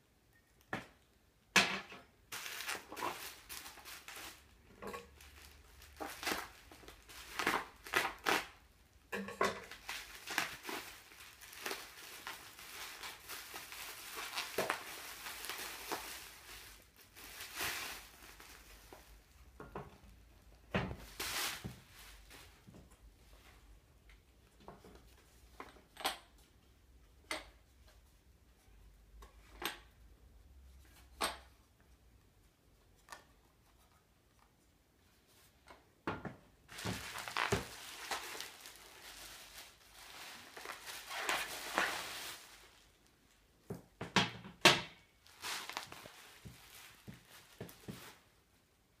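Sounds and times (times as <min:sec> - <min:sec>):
bubble wrap crinkling: 0:02.3 - 0:08.8, 0:09.6 - 0:19.5, 0:20.9 - 0:22.7, 0:36.7 - 0:43.5, 0:45.1 - 0:48.7.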